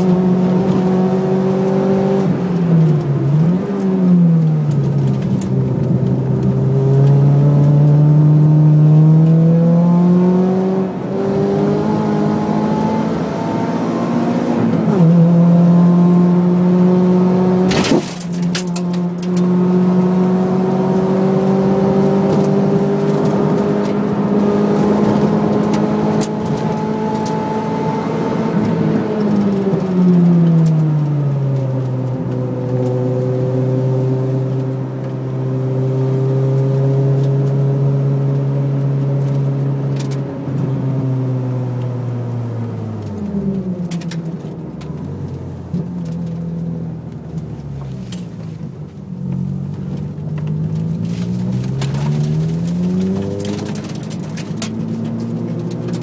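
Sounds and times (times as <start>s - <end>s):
car engine revving from inside: 0.0s - 56.0s.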